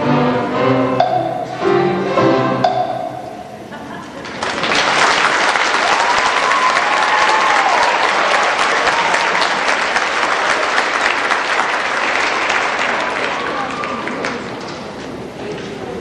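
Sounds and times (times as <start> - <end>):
audience applauding: 4.2 - 15.0.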